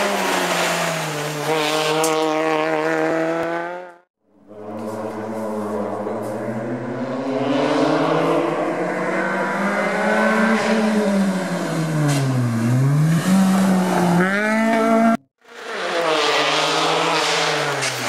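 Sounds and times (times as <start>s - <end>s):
rally car engine revving: 0.0s - 18.0s.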